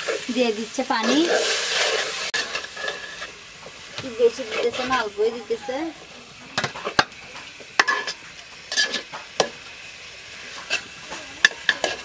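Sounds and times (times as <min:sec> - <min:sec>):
low sizzle: 0:00.0 - 0:12.0
utensil scraping a cooking pot: 0:00.9 - 0:03.4, 0:04.0 - 0:06.0, 0:07.8 - 0:09.5, 0:10.4 - 0:12.0.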